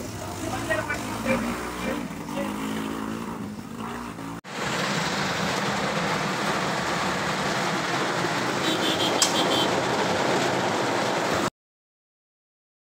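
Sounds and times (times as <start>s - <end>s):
engine hum: 0.0s - 11.5s
heavy rain on car windshield: 4.5s - 11.5s.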